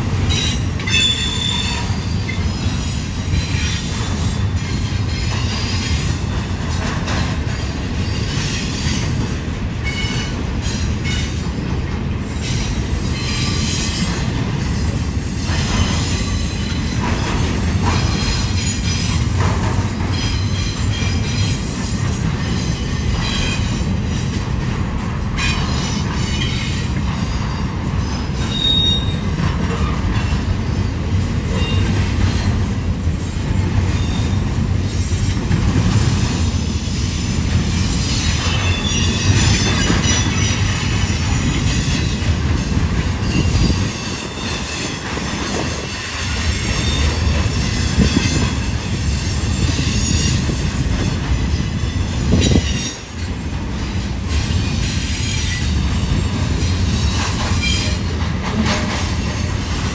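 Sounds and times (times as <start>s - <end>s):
freight train wheels rumbling: 0.0s - 59.9s
high wheel squeals: 25.4s - 30.0s, 36.8s - 42.3s.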